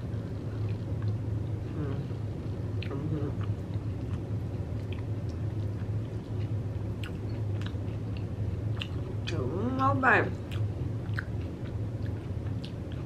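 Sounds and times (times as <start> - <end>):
low steady hum: 0.0 - 13.0
chewing crunchy snack: 2.0 - 9.3, 10.4 - 13.0
wet mouth clicks: 10.5 - 11.4.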